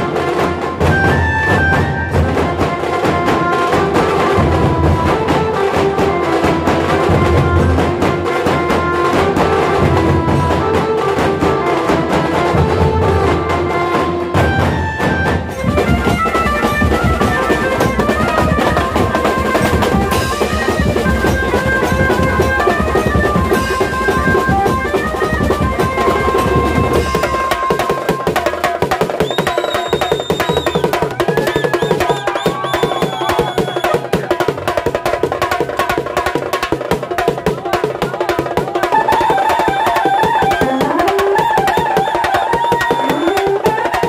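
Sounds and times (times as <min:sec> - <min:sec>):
held melody notes: 0:00.0 - 0:28.7
fast dense drumming: 0:14.2 - 0:44.0.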